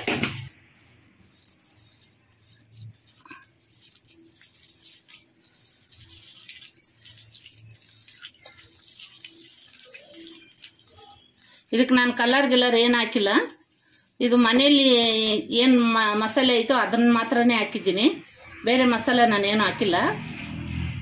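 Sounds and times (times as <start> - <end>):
scraping against steel bowl: 0.0 - 15.0
fingers squelching wet paste: 0.0 - 21.0.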